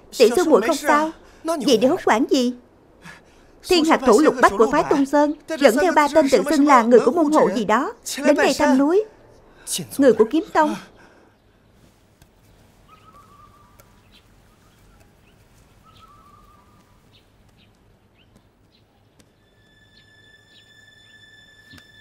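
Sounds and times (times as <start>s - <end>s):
faint birdsong: 0.0s - 22.0s
steady high tone: 19.4s - 22.0s.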